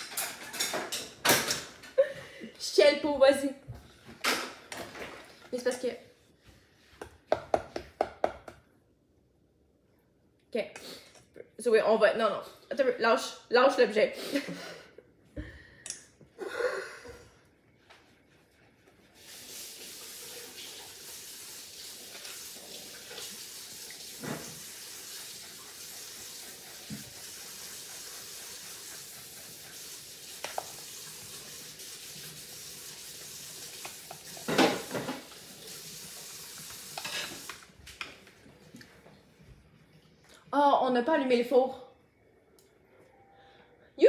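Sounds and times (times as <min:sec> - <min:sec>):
dishes clattering: 0:00.0 - 0:02.0, 0:34.2 - 0:35.4
tap water running: 0:19.0 - 0:40.5.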